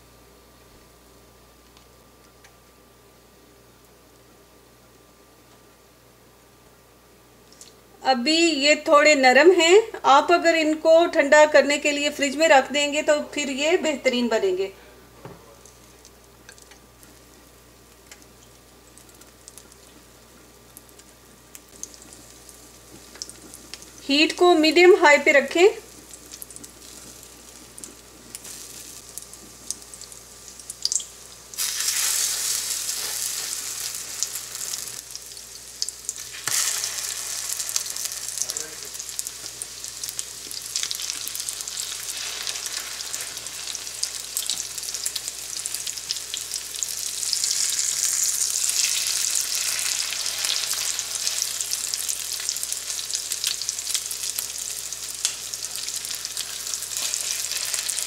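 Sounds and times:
meat sizzling in oil: 0:16.0 - 0:58.0.

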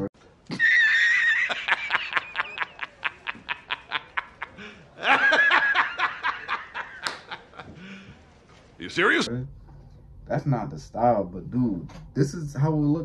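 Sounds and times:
man cackling laugh: 0:00.5 - 0:07.7.

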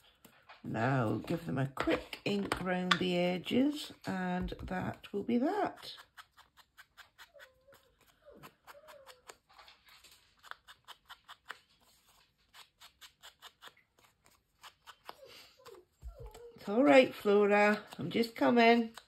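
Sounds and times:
dog whining: 0:07.0 - 0:09.8, 0:15.1 - 0:16.7.

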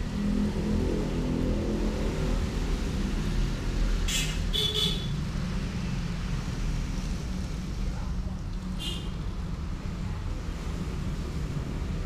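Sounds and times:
low rumble of motor traffic: 0:00.0 - 0:12.0.

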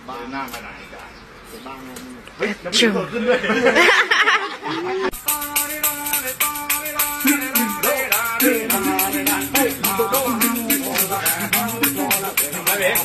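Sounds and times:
music with steady beat and melody: 0:05.1 - 0:13.0.

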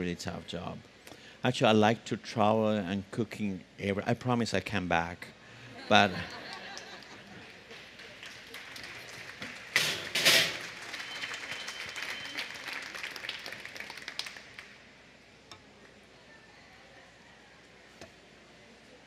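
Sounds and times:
audience applauding: 0:06.4 - 0:14.8.

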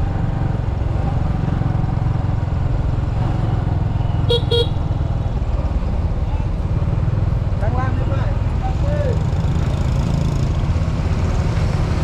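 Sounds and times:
low rumble of road traffic: 0:00.0 - 0:12.0
vehicle horn beeps: 0:04.2 - 0:04.8.

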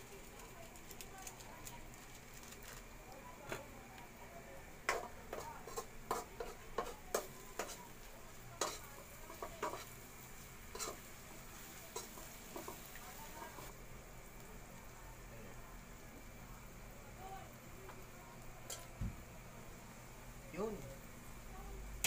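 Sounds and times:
metal spatula scraping a wok: 0:05.0 - 0:07.9, 0:08.6 - 0:10.0, 0:10.7 - 0:11.1.

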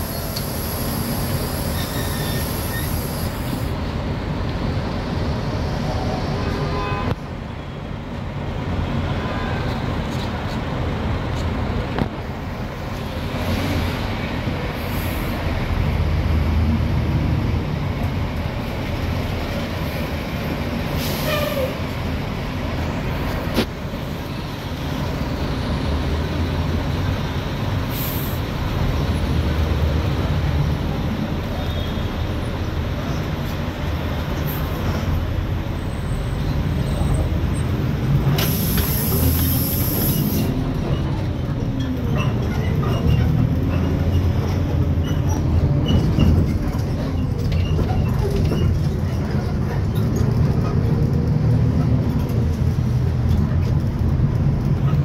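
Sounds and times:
brake air hisses: 0:00.0 - 0:03.8, 0:27.9 - 0:28.5, 0:38.3 - 0:40.6
bus engine rumbling: 0:00.0 - 0:55.0.

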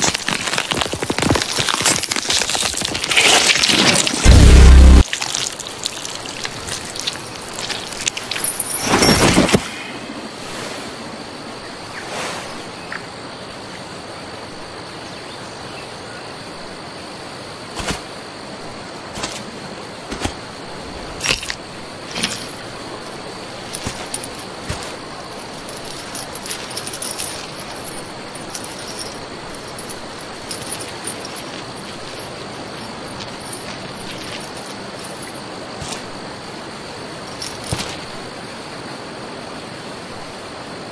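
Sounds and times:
steady high hiss: 0:02.8 - 0:40.9
loud impact: 0:04.0 - 0:05.0
metallic chain clinks: 0:06.0 - 0:09.6, 0:21.2 - 0:35.5, 0:37.2 - 0:38.2.

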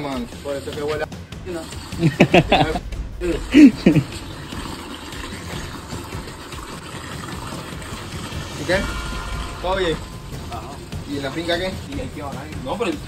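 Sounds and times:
water pouring into plastic tub: 0:04.0 - 0:08.7.

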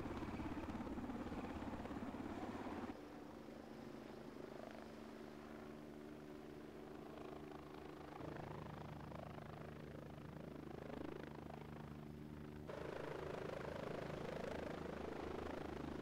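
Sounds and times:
helicopter rotor chop: 0:00.0 - 0:03.0, 0:04.4 - 0:16.0
helicopter turbine whine: 0:00.0 - 0:16.0.

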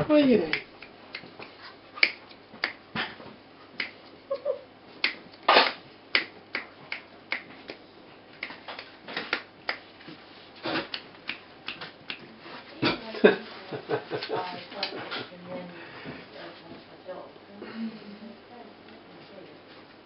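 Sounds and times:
fingers snapping: 0:00.5 - 0:02.8, 0:03.8 - 0:07.8, 0:08.4 - 0:09.9, 0:10.7 - 0:12.3.

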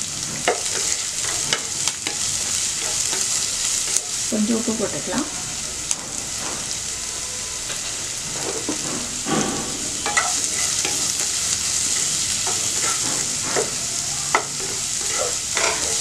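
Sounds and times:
onions sizzling in oil: 0:00.0 - 0:16.0
wooden spatula scraping pan: 0:08.3 - 0:16.0.

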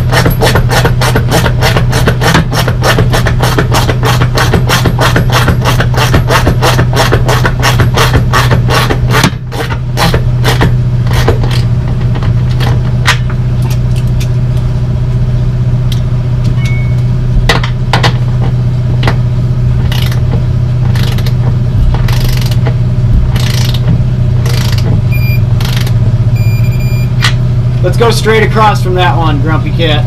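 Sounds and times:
engine idling: 0:00.0 - 0:30.0
ratchet wrench clicking: 0:19.9 - 0:20.2, 0:20.9 - 0:21.4, 0:22.0 - 0:22.7, 0:23.3 - 0:24.9, 0:25.6 - 0:26.0.

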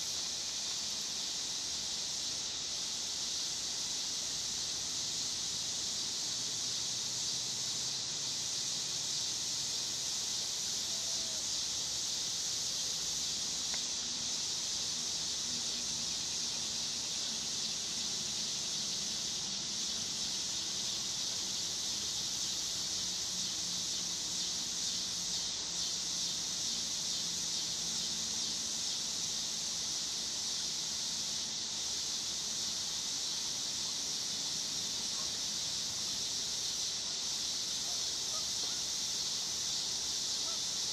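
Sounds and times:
insect chorus: 0:00.0 - 0:40.9.

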